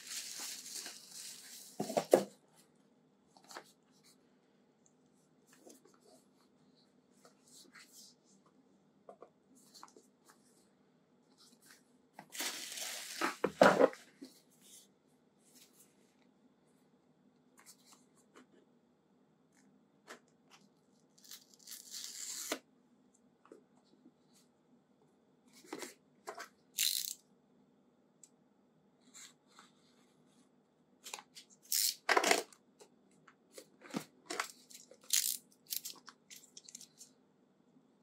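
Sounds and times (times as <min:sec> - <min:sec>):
packaging rustling and tearing: 0:12.3 - 0:13.4.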